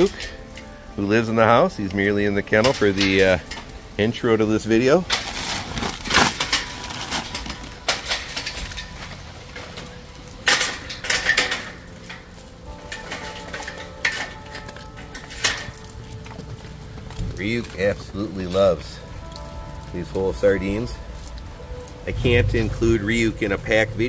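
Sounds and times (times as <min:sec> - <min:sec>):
plastic bag rustling: 0:04.7 - 0:23.4.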